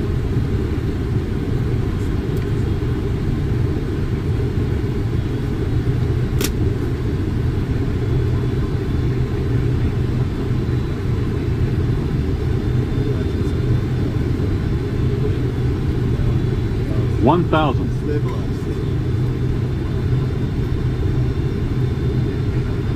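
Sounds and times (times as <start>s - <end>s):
airflow and engine rush: 0.0s - 22.9s
sharp click: 6.4s - 6.6s.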